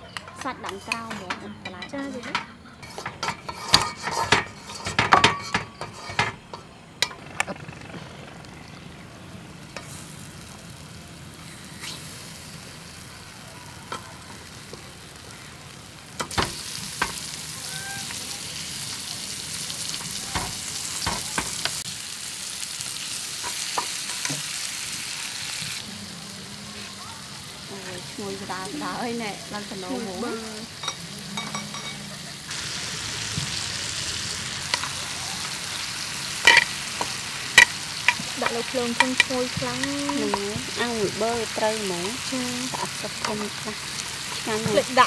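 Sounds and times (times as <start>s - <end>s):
utensils clinking on dishes: 0.0s - 7.2s, 29.9s - 32.3s, 36.4s - 41.2s
food sizzling on grill pan: 9.4s - 45.0s.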